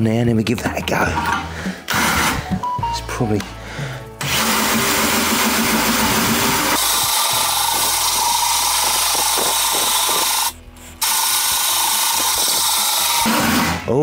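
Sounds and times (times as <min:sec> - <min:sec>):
drill motor whine: 0:04.2 - 0:13.8
hole saw grinding metal: 0:04.2 - 0:14.0.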